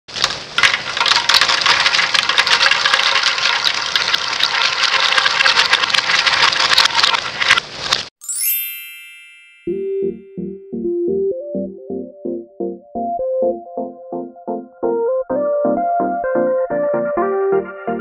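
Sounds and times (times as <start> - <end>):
crackers pouring onto plastic: 0.1 - 8.1
electronic whoosh and chime: 8.2 - 10.1.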